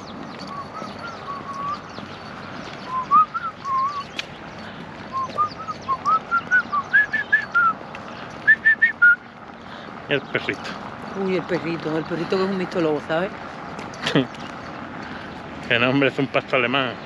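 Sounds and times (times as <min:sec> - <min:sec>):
person whistling a tune: 0:02.9 - 0:04.0, 0:08.5 - 0:09.2.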